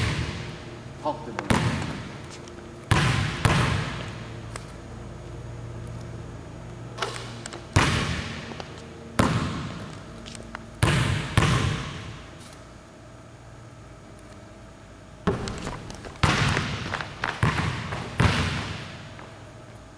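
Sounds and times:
basketball bouncing on gym floor: 0:00.0 - 0:00.6, 0:01.3 - 0:04.3, 0:07.0 - 0:10.0, 0:10.8 - 0:12.3, 0:15.2 - 0:19.4.

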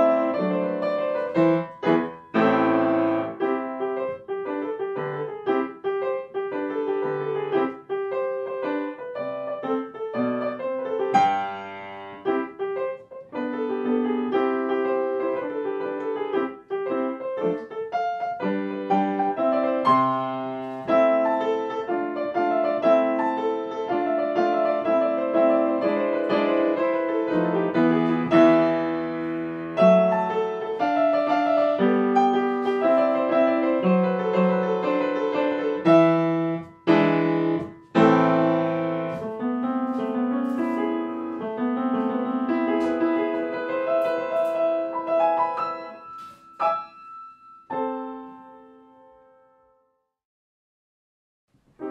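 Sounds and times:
piano music: 0:00.0 - 0:50.0.

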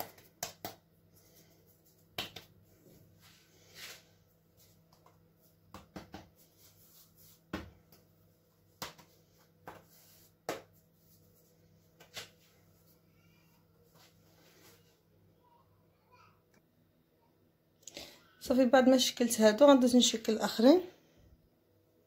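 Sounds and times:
hands patting bread dough: 0:00.0 - 0:01.0, 0:01.6 - 0:02.6, 0:04.8 - 0:06.7, 0:07.3 - 0:11.0.

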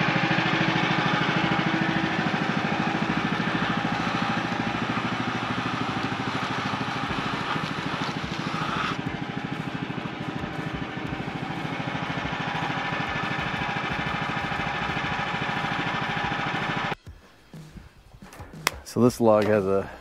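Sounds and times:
sawmill engine running: 0:00.0 - 0:17.0.

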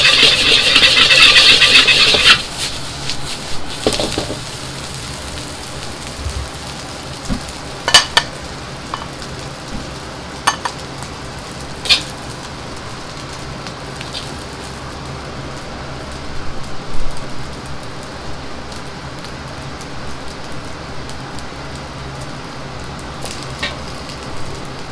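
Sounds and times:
knocks and scraping: 0:00.0 - 0:04.4
rice sizzling in a wok: 0:00.0 - 0:24.9
metal ladle clinking on wok: 0:07.9 - 0:08.3, 0:10.5 - 0:10.8.

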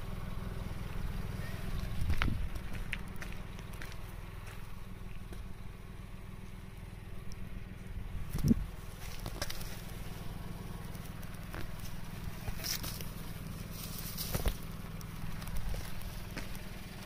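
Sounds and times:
steady low hum: 0:00.0 - 0:17.0
footsteps in grass: 0:08.3 - 0:17.0.

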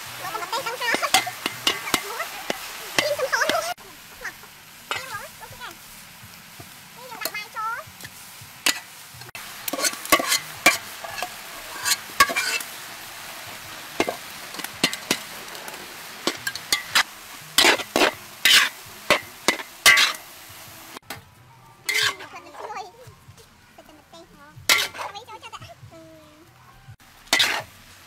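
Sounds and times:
steady sizzle: 0:00.0 - 0:28.0
metal spatula scraping a wok: 0:00.1 - 0:03.8, 0:04.9 - 0:06.0, 0:07.1 - 0:20.3, 0:21.9 - 0:23.0, 0:24.6 - 0:25.4, 0:27.3 - 0:27.8.

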